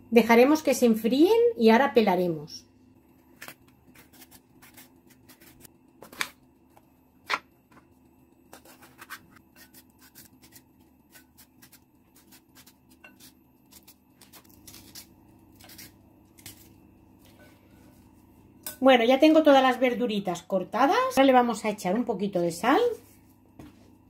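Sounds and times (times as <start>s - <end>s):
knife slicing peppers: 3.3s - 6.4s, 8.5s - 16.7s.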